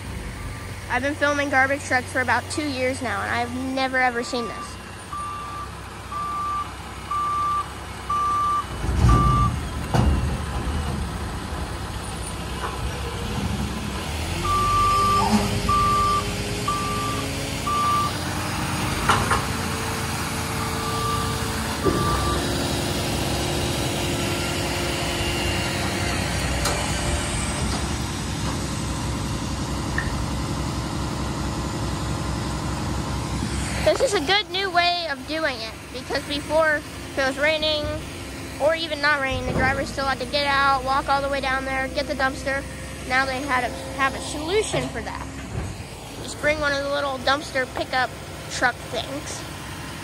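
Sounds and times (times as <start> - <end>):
truck engine revving: 0.0 - 50.0
backup alarm beeping: 3.8 - 9.7, 14.4 - 18.2, 20.6 - 22.6.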